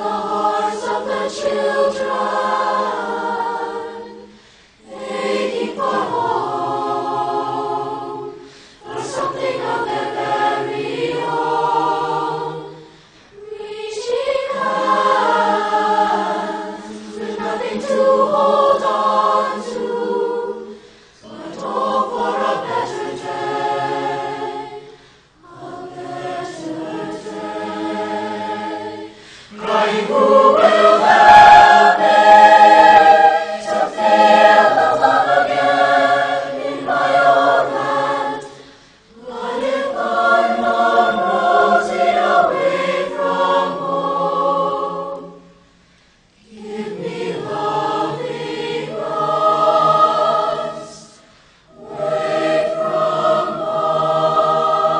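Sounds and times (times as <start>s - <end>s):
choir singing held notes: 0.0s - 54.9s.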